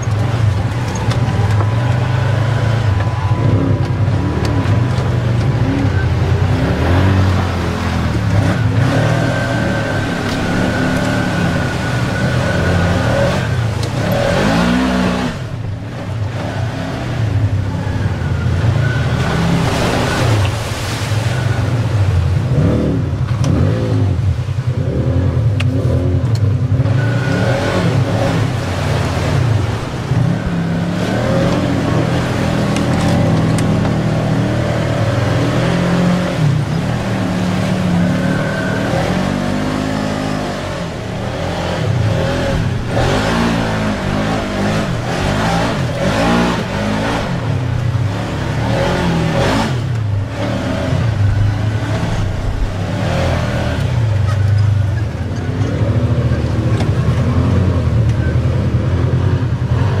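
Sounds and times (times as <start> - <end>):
utility vehicle engines revving: 0.0 - 60.0.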